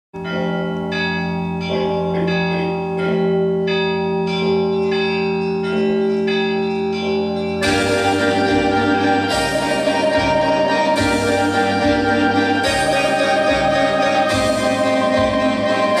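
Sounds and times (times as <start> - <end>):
church bells ringing: 0.2 - 16.0
organ-like backing music: 7.6 - 16.0.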